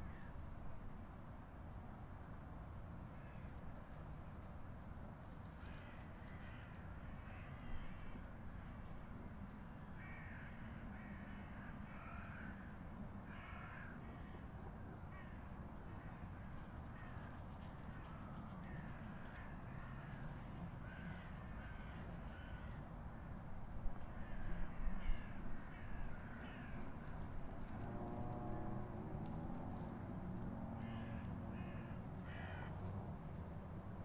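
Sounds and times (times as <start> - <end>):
crows cawing: 0.0 - 0.3, 3.2 - 3.5, 5.6 - 8.8, 9.9 - 23.3, 24.0 - 27.8, 30.7 - 32.9.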